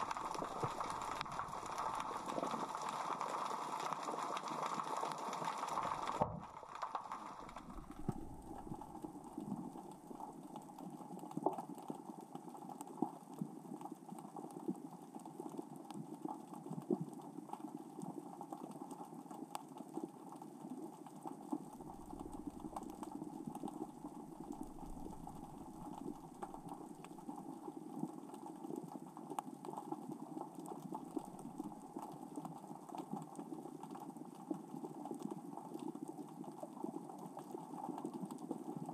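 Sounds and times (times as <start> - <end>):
underwater rocks clicking: 0.0 - 12.4, 21.0 - 33.2.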